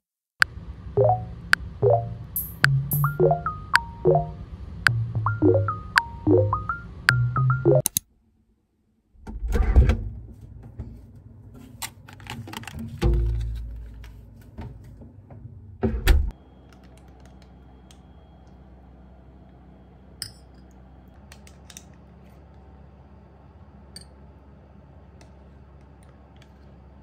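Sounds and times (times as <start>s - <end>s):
low steady hum: 0.4s - 7.9s, 16.3s - 27.0s.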